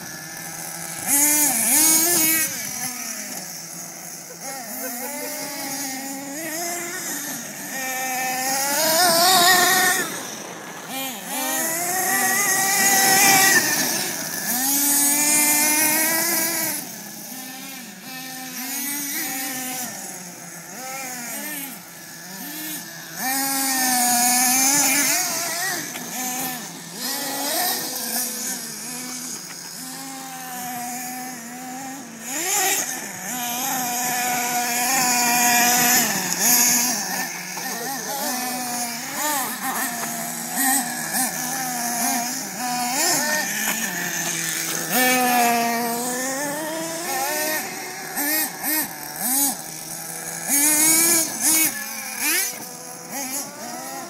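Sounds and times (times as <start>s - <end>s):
small engine revving: 0.0s - 54.0s.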